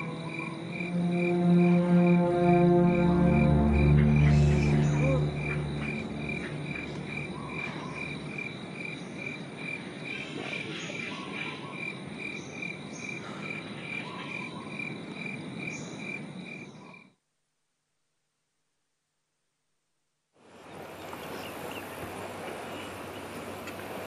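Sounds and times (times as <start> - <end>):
pulsing chirp: 0.0 - 8.5
frogs and insects trilling: 0.0 - 17.2.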